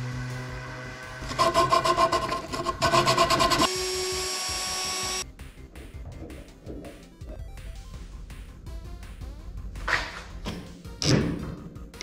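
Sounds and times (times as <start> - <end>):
cordless drill whining: 2.8 - 5.2
orbital sander on wood: 2.8 - 5.2.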